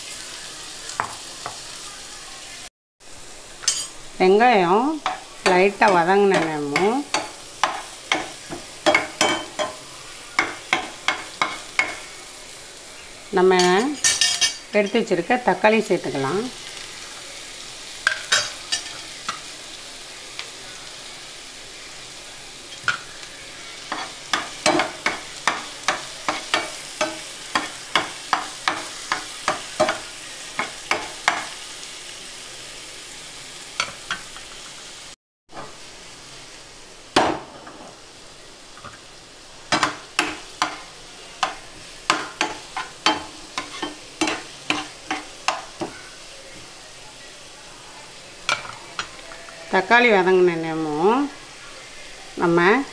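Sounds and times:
onions and tomato sizzling: 0:00.0 - 0:52.9
metal spatula scraping a pan: 0:39.8 - 0:46.2.

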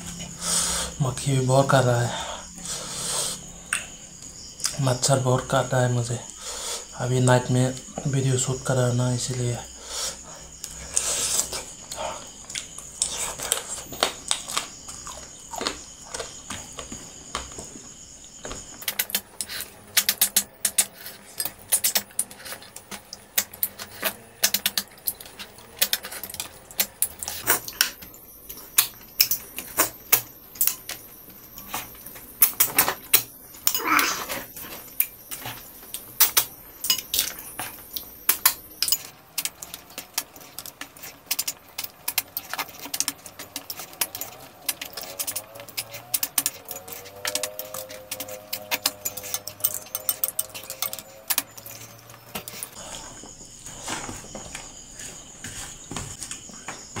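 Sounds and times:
snail shells clicking: 0:18.8 - 0:52.8.

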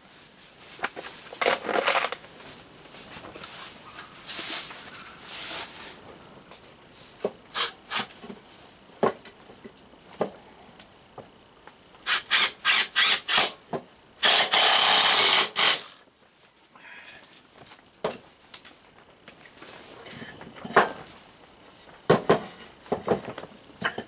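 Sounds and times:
handling rustle: 0:00.0 - 0:07.3
drill driving screws into wood: 0:07.5 - 0:08.1, 0:12.0 - 0:13.6, 0:14.2 - 0:16.0.

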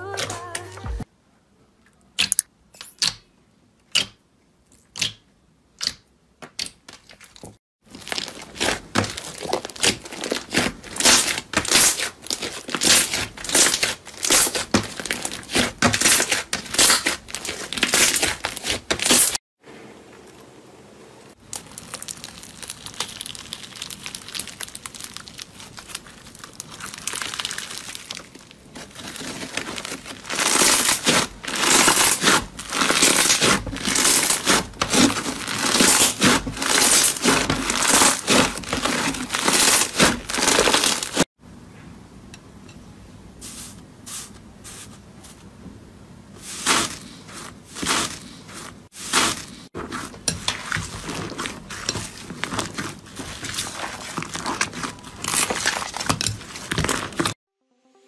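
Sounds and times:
slime being stretched: 0:21.4 - 0:41.2.

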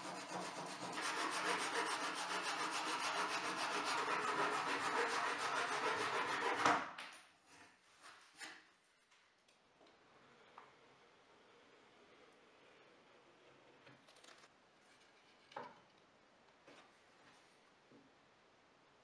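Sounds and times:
handsaw cutting plywood: 0:00.0 - 0:06.9.

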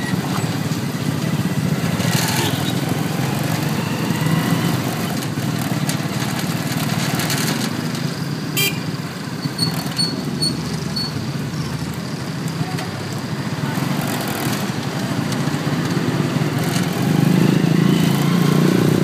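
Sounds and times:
vehicle engine and road noise: 0:00.0 - 0:19.0.

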